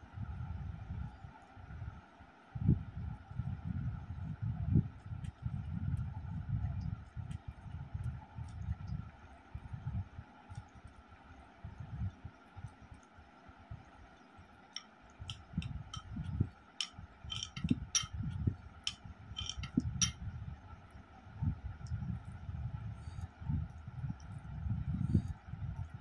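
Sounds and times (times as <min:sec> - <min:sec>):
hand mixing rice on plate: 0:14.8 - 0:20.2
spoon clinking glass bowl: 0:17.3 - 0:18.2, 0:18.9 - 0:20.2.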